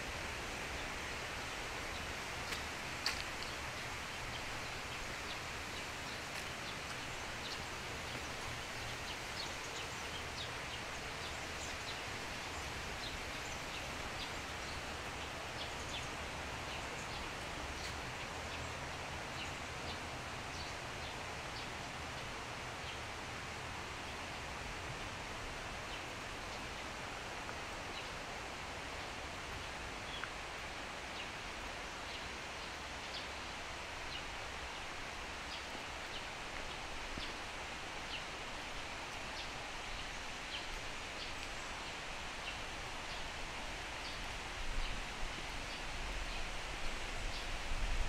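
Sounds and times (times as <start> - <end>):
outdoor ambient hiss: 0.0 - 48.0.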